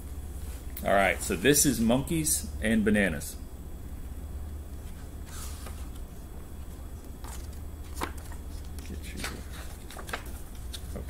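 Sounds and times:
low room hum: 0.0s - 11.0s
paper pages rustling: 4.8s - 11.0s.

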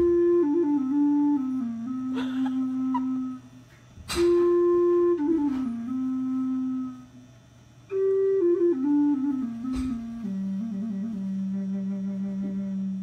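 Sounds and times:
wooden flute playing: 0.0s - 13.0s.

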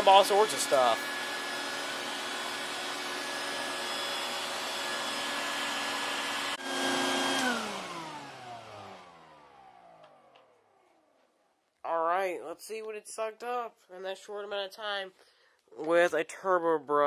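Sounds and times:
shop vacuum running: 0.0s - 10.7s
motor whine spinning down: 0.0s - 10.8s.

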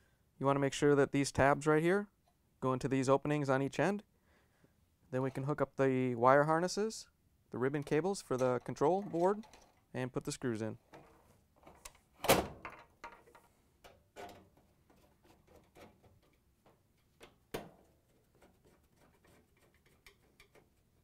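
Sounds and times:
small clicks and rattles: 8.4s - 9.9s.

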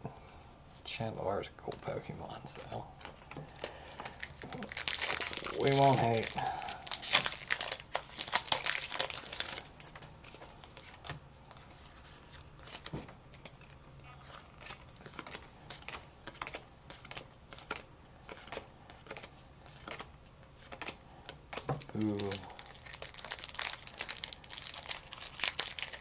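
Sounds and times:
foil pack crinkling: 3.0s - 20.1s, 21.8s - 26.0s
cards clicking and tapping: 14.6s - 22.4s.

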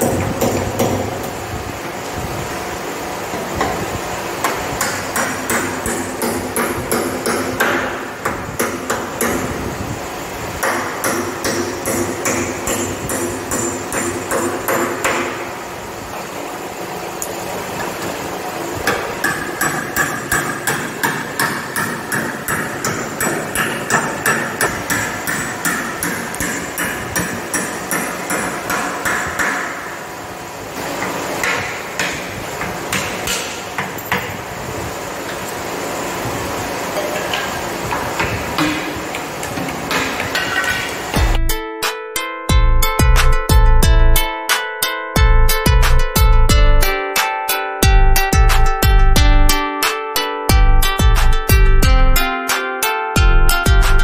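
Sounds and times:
hammer blows on wood: 4.4s - 9.8s, 10.6s - 15.5s, 18.8s - 29.9s.

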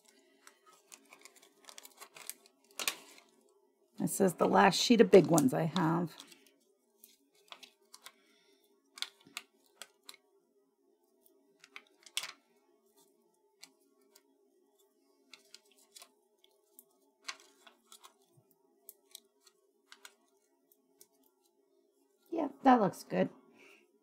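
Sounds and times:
paper pieces clicking and tapping: 0.4s - 3.2s, 9.0s - 10.2s, 11.6s - 12.4s, 17.2s - 18.2s, 18.9s - 20.2s.

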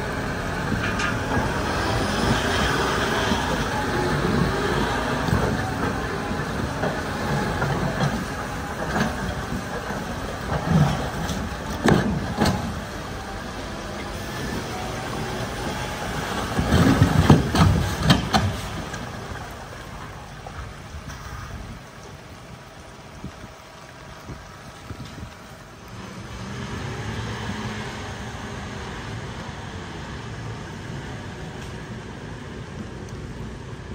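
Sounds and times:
trailer clattering and knocking: 0.0s - 26.2s
tractor diesel engine running: 0.0s - 33.9s.

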